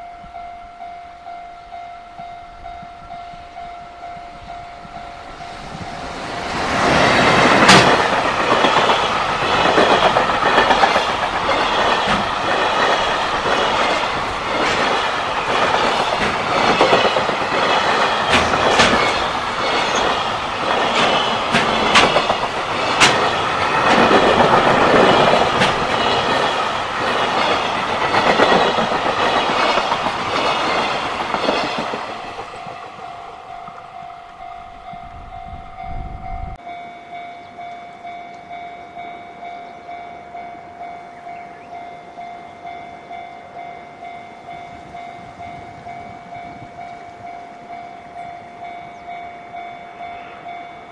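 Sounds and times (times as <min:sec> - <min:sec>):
freight train passing: 0:00.0 - 0:50.9
level-crossing warning bell: 0:00.0 - 0:50.9
wheels clacking over rail joints: 0:05.4 - 0:34.6.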